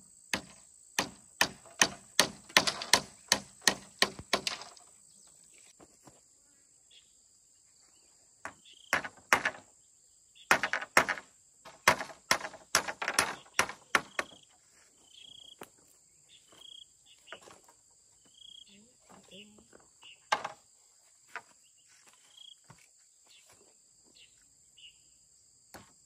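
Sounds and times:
crickets buzzing: 0.0 - 26.0
hand tool striking wood: 0.3 - 4.9, 8.5 - 9.6, 10.5 - 14.4.

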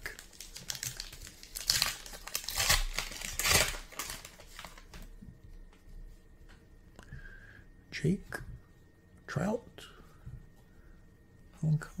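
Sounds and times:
wrapper tearing and crinkling: 0.0 - 5.1.

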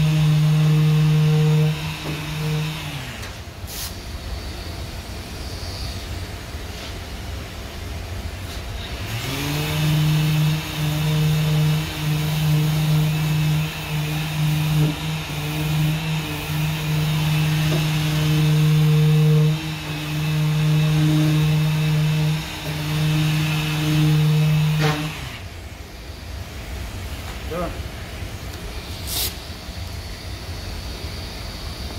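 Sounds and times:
orbital sander running: 0.0 - 3.2, 8.8 - 25.5.

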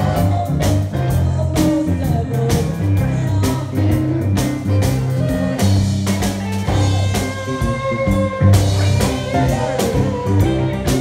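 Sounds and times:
blues band playing: 0.0 - 11.0
woman singing: 0.0 - 11.0.

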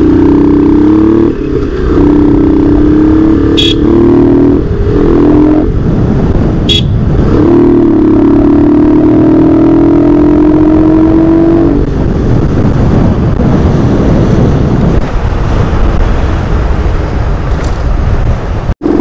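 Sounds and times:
motorcycle engine droning: 0.0 - 19.0.

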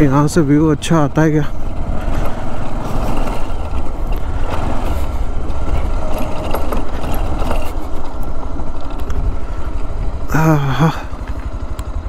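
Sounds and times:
heavy low rumble: 0.0 - 12.0
motorcycle engine riding slowly: 0.0 - 12.0.

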